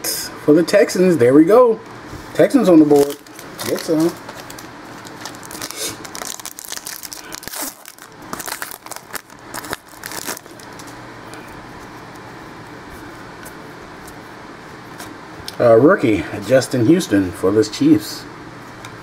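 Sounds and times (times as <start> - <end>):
steady low hum: 0.0 - 19.0
card pack wrapper crinkling: 2.7 - 11.0.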